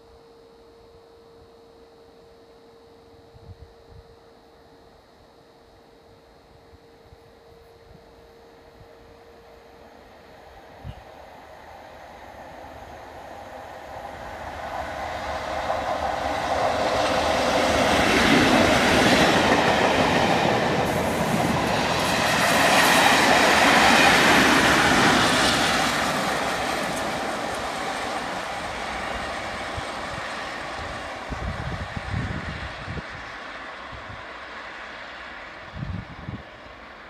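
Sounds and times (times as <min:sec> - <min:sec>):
diesel locomotives passing: 0:05.2 - 0:37.0
train wheels on rails: 0:09.4 - 0:37.0.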